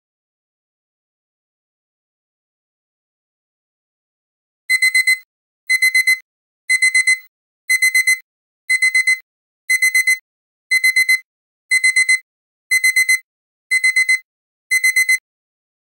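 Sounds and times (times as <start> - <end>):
timer alarm beeping: 4.7 - 15.2.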